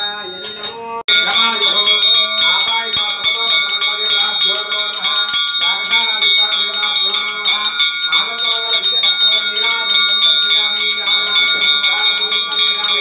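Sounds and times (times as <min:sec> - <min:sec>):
hand bell rung rapidly: 0:00.0 - 0:13.0
voices: 0:00.0 - 0:13.0.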